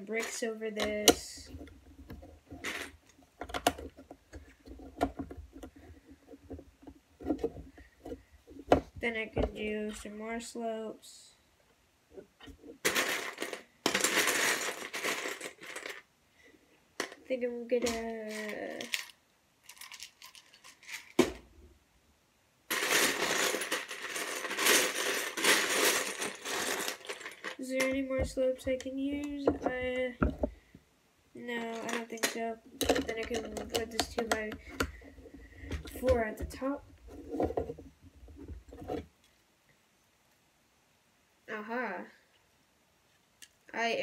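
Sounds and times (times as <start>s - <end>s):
plastic bricks clattering in bin: 0.0s - 9.5s, 12.8s - 16.1s, 22.7s - 30.6s, 31.6s - 39.1s
plastic bricks clicking: 31.6s - 37.8s.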